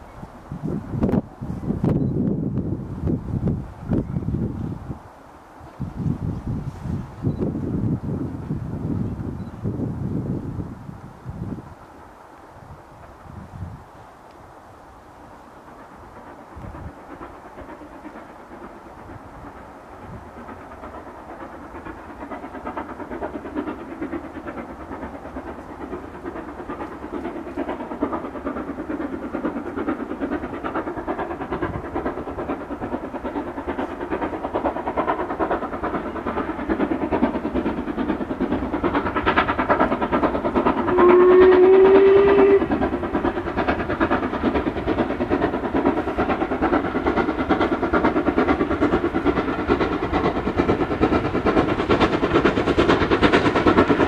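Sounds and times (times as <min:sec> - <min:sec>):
steam locomotive exhaust beats: 0:00.0 - 0:54.0
steam whistle blast: 0:40.9 - 0:42.7.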